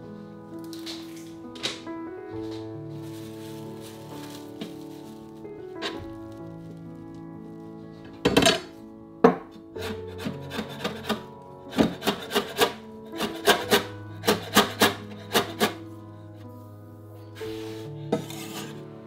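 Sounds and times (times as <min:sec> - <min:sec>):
soft background music: 0:00.0 - 0:19.0.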